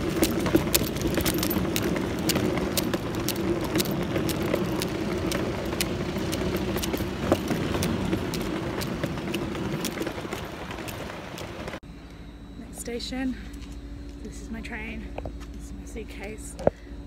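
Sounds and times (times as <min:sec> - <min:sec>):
suitcase rolling over paving: 0:00.0 - 0:11.8.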